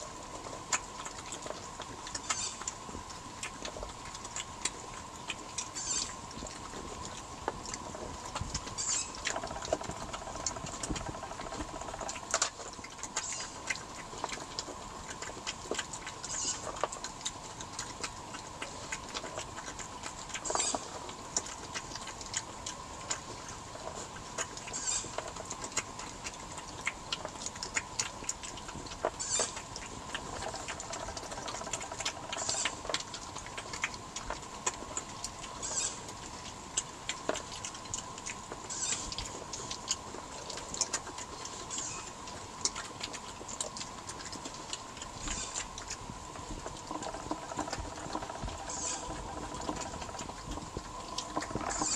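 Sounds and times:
badgers crunching peanuts: 0:00.0 - 0:51.9.

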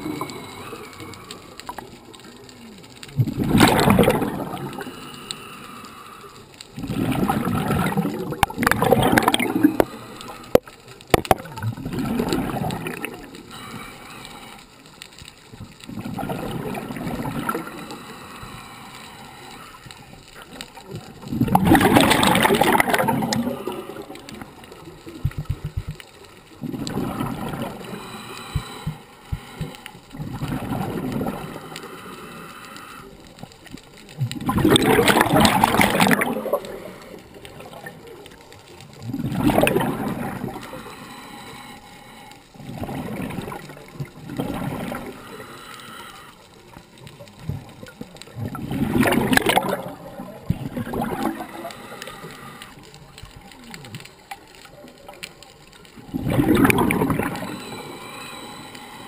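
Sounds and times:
scuba regulator breathing underwater: 0:00.0 - 0:02.0, 0:03.3 - 0:10.7, 0:12.0 - 0:14.9, 0:16.0 - 0:20.6, 0:26.6 - 0:33.6, 0:39.1 - 0:46.9, 0:48.5 - 0:53.1, 0:56.1 - 0:59.0
exhaled bubbles rushing: 0:03.1 - 0:04.9, 0:06.8 - 0:10.0, 0:10.6 - 0:13.4, 0:15.6 - 0:17.9, 0:20.8 - 0:26.0, 0:26.6 - 0:28.0, 0:29.6 - 0:31.7, 0:34.2 - 0:38.3, 0:38.9 - 0:40.8, 0:42.6 - 0:45.2, 0:47.4 - 0:51.8, 0:56.0 - 0:57.9.

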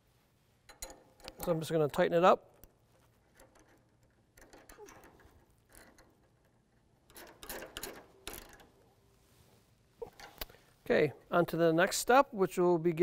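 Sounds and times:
metal clicks and scrapes: 0:02.6 - 0:08.9.

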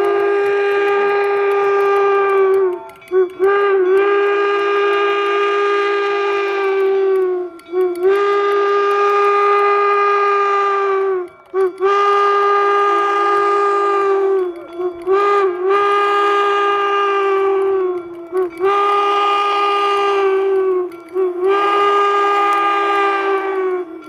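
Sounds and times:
steam locomotive whistle blasts: 0:00.0 - 0:24.0.

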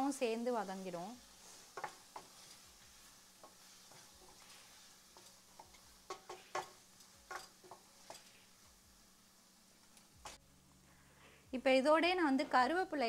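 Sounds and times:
faint sizzle: 0:00.0 - 0:13.0
spoon scraping pan: 0:00.2 - 0:08.8, 0:09.8 - 0:10.4.

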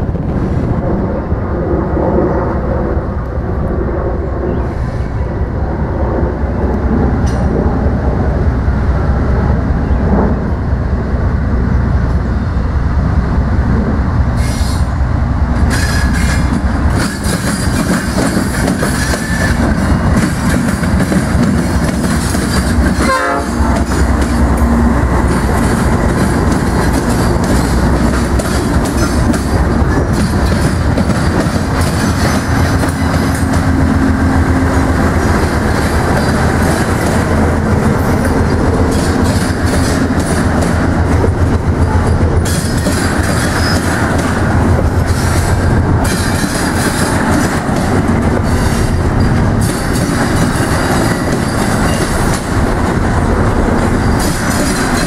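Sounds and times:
diesel locomotives rumbling: 0:00.0 - 0:55.0
train wheels clickety-clack: 0:06.6 - 0:07.9, 0:14.4 - 0:55.0.

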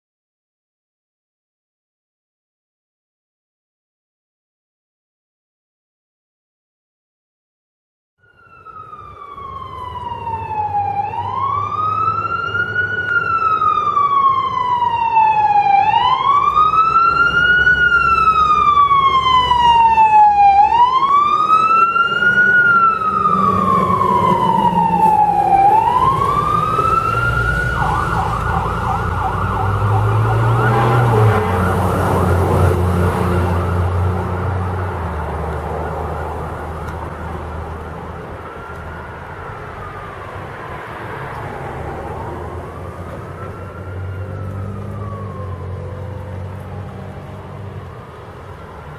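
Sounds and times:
fire truck siren: 0:08.2 - 0:48.9
heavy engine rumbling: 0:16.2 - 0:48.9.

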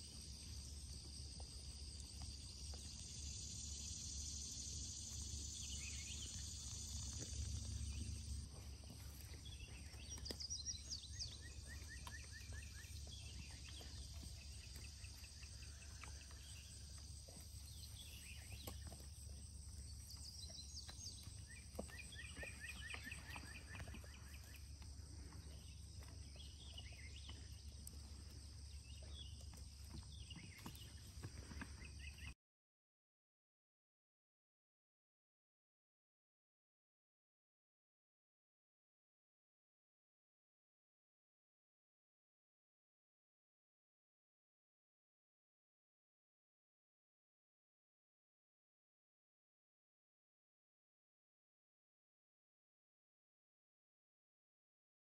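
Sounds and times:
high insect drone: 0:00.0 - 0:10.0.

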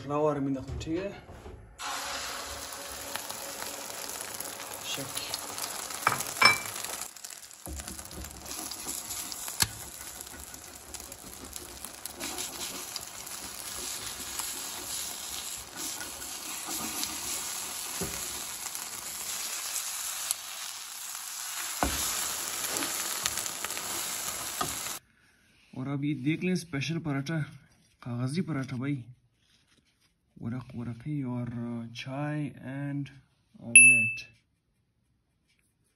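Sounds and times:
omelette sizzling in oil: 0:01.8 - 0:25.0.

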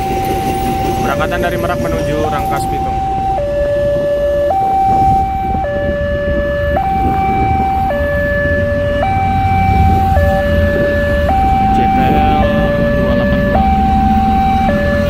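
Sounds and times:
train rumble: 0:00.0 - 0:15.0
two-tone crossing alarm: 0:00.0 - 0:15.0
motorcycle engines idling: 0:10.0 - 0:15.0.

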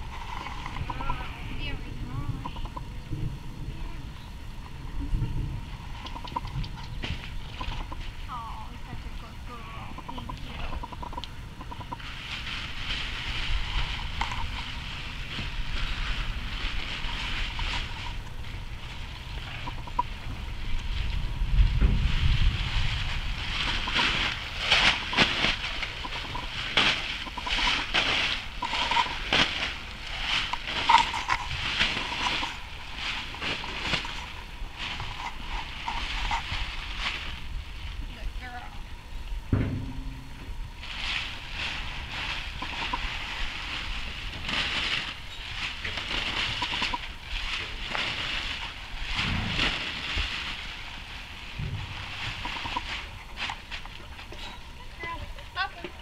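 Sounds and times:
plastic tarp crinkling and flapping: 0:11.9 - 0:38.7, 0:39.9 - 0:56.0.

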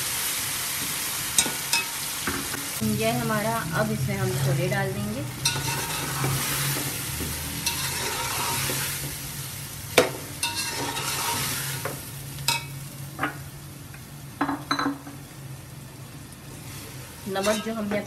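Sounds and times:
food sizzling in hot oil: 0:00.0 - 0:18.0
metal spatula scraping pot: 0:04.1 - 0:07.0, 0:07.6 - 0:09.0, 0:10.4 - 0:11.9, 0:17.4 - 0:18.0.

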